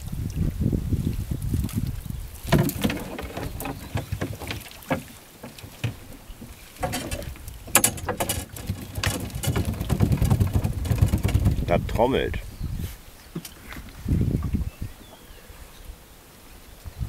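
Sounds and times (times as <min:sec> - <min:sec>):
water splashing and dripping: 0:00.0 - 0:12.0
sharp clicks and knocks: 0:02.5 - 0:11.8.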